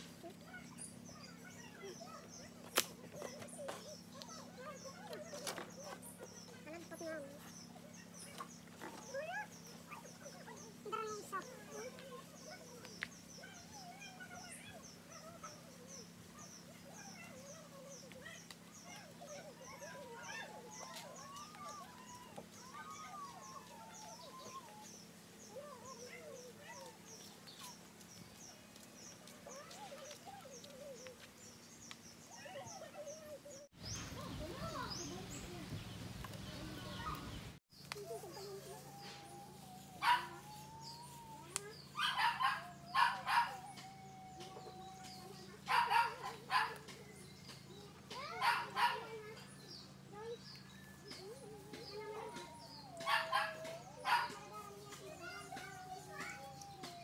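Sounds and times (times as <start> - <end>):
dog barking: 40.0 - 40.4, 42.0 - 43.6, 45.6 - 46.9, 48.4 - 49.1, 53.0 - 54.4.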